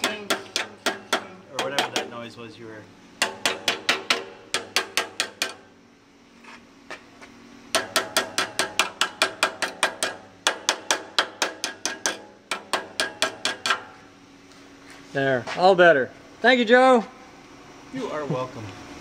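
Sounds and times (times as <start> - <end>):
hammer striking metal exhaust pipe: 0.0 - 2.3, 3.2 - 5.7, 7.7 - 14.1.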